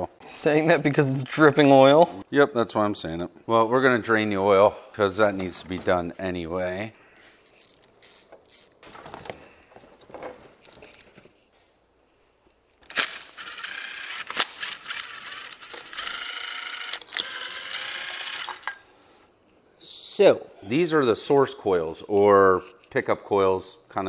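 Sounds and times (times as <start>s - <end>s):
cordless drill whirring: 12.9s - 18.7s.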